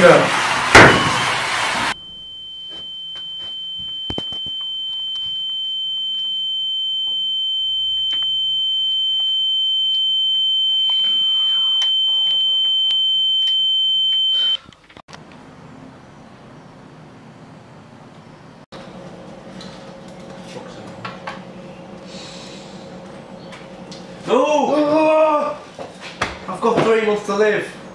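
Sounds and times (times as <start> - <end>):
high-pitched electronic ringing tone: 2.0 - 14.6.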